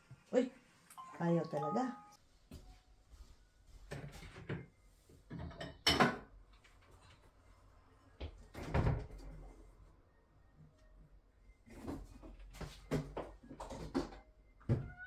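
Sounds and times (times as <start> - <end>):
cupboard door opening and shutting: 8.4 - 9.3.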